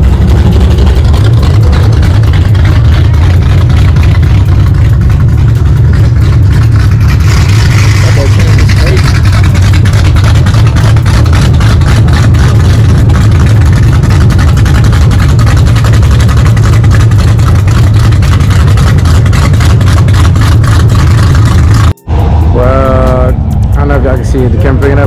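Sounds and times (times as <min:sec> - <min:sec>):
car engine running loudly: 0:00.0 - 0:25.0.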